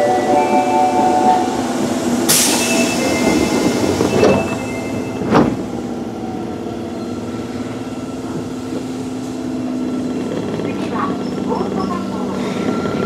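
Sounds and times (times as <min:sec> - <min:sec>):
air hiss: 0:02.3 - 0:03.2.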